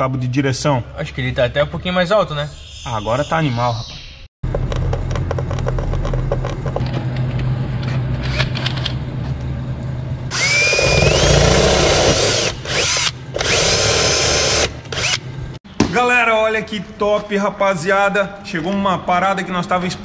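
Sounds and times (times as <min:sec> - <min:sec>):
steady low hum: 0:04.5 - 0:15.6
cordless drill whining: 0:10.3 - 0:15.2.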